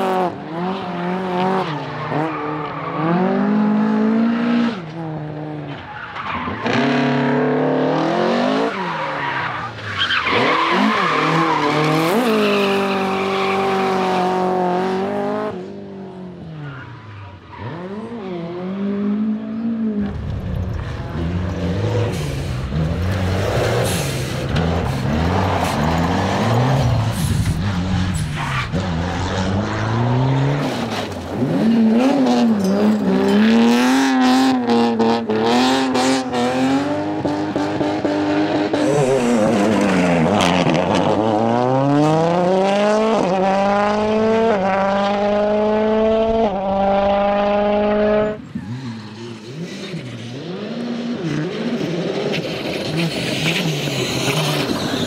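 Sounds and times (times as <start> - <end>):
rally car engines racing: 0.0 - 55.0.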